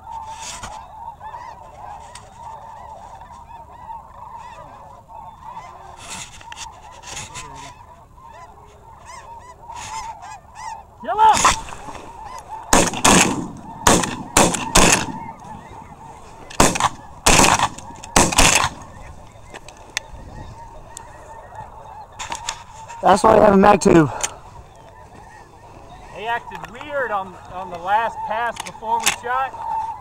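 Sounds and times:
snow geese calling: 0.0 - 30.0
shotgun blasts: 12.7 - 15.2, 16.5 - 18.8.

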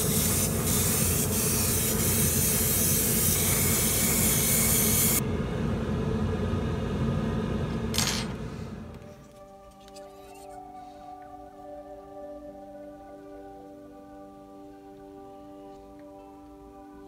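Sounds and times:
airbrush spraying hiss: 0.0 - 5.2
steady low hum: 0.0 - 9.8.

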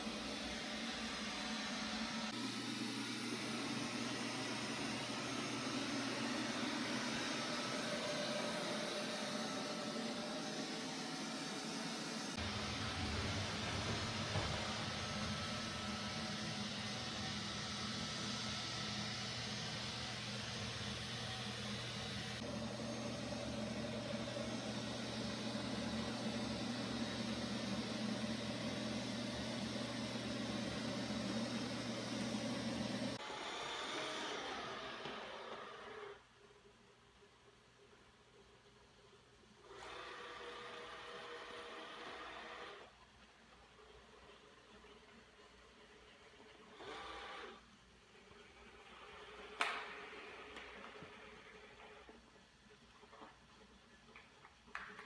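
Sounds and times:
robot vacuum running on carpet: 0.0 - 36.1.

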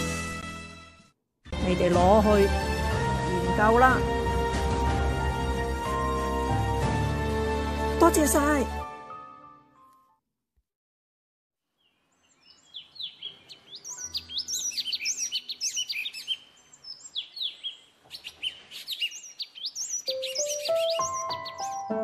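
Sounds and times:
small birds chirping: 11.8 - 22.0.

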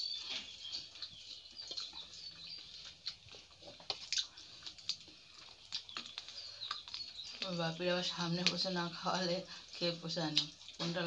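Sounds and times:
chewing: 0.0 - 11.0
small birds chirping: 0.0 - 11.0
lip smacks and clicks: 0.7 - 7.5.

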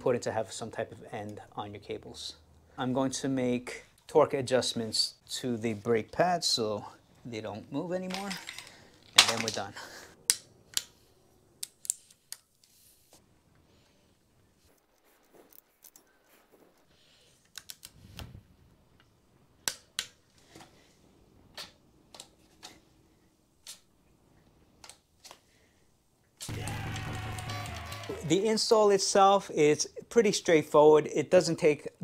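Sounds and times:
music: 26.5 - 28.3.

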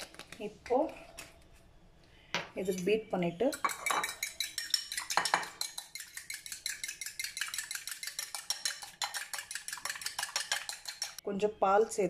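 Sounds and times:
fork clicking against ceramic bowl: 3.5 - 11.2.

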